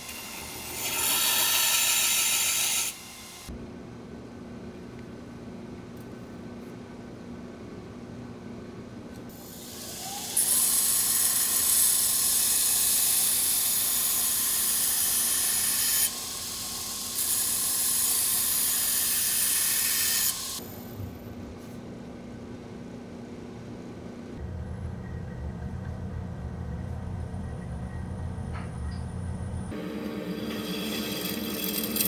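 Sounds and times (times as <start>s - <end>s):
belt grinder motor running: 29.8s - 32.0s
knife blade grinding on belt grinder: 29.8s - 32.0s.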